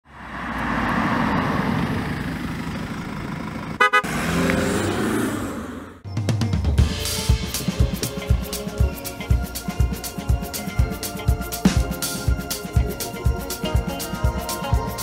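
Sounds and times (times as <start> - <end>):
vehicle engine driving up: 0.1 - 8.4
double horn toot: 3.8 - 4.8
drum beat: 6.2 - 15.0.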